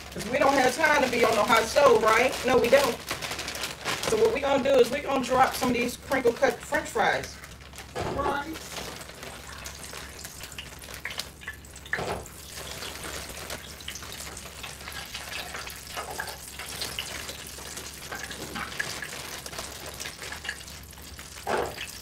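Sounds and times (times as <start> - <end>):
plastic bag crinkling: 0.0 - 22.0
fries dropping into basket: 7.8 - 9.2
hot oil hissing in deep fryer: 9.3 - 22.0.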